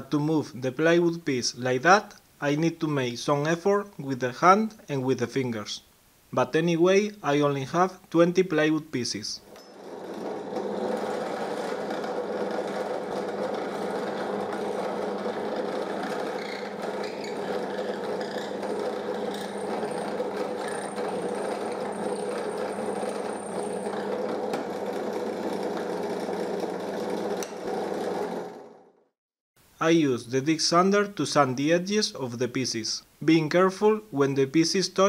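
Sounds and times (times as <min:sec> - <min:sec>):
drill press cutting wood: 0:09.6 - 0:28.8.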